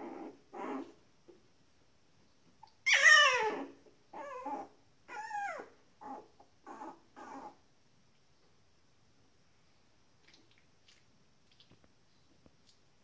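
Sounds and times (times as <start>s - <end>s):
puppies yelping and whining: 2.6s - 7.6s.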